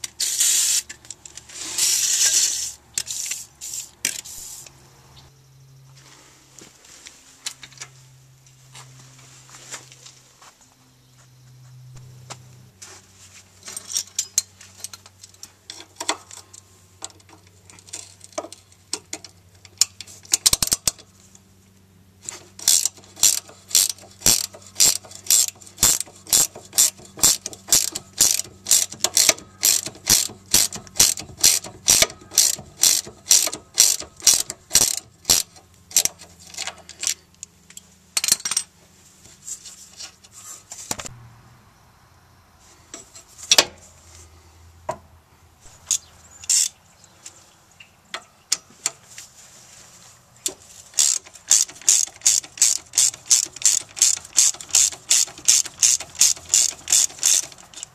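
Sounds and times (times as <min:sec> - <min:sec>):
ratchet wrench clicking: 0:00.0 - 0:04.3, 0:19.7 - 0:21.0, 0:22.3 - 0:38.4, 0:50.9 - 0:57.9.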